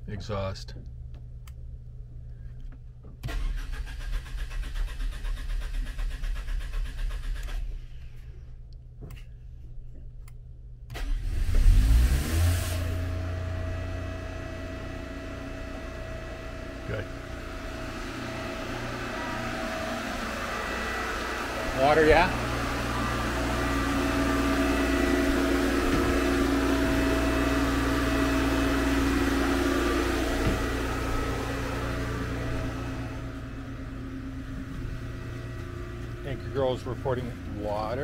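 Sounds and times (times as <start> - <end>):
generator starter rattle: 3.2 - 8.0
generator engine running: 11.5 - 38.0.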